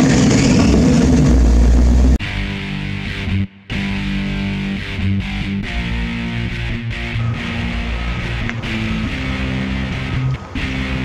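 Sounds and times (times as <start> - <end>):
background music with guitar chords: 2.2 - 11.0.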